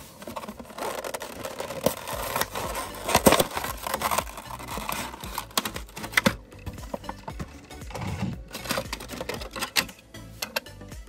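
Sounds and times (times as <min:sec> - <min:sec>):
plastic packaging crinkling and tearing: 0:00.0 - 0:07.6, 0:08.4 - 0:09.9.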